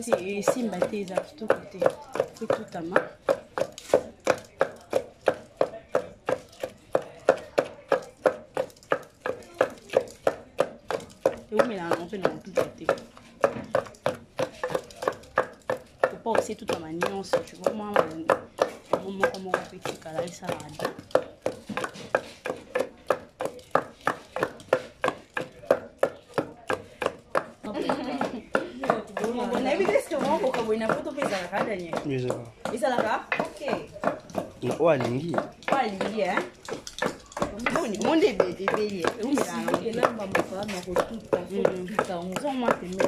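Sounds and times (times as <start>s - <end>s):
pestle pounding in wooden mortar: 0.0s - 43.0s.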